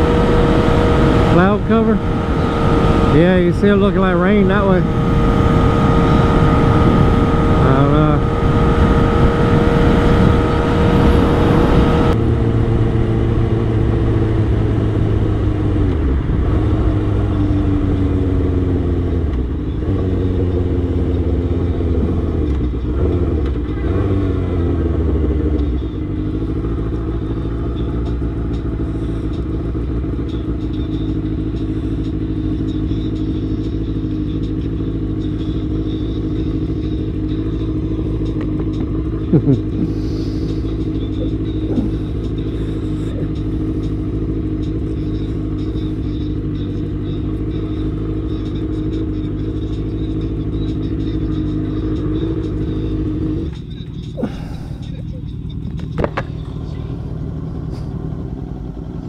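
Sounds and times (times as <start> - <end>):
motorcycle engine: 0.0 - 59.0
wind rush: 4.8 - 7.6, 8.2 - 12.2.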